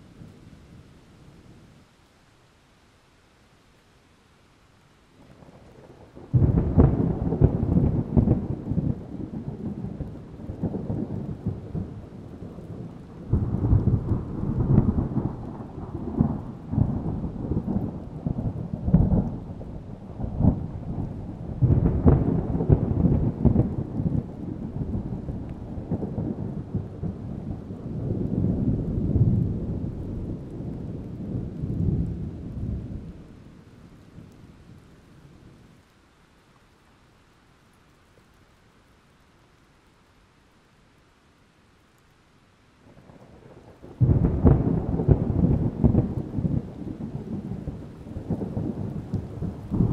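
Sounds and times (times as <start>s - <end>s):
rolling thunder: 5.2s - 34.9s, 42.9s - 49.9s
thunderclap: 5.3s - 33.4s, 43.0s - 49.9s.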